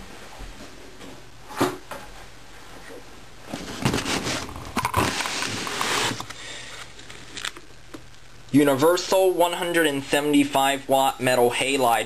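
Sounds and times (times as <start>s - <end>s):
cardboard box rustling and scraping: 3.5s - 6.3s.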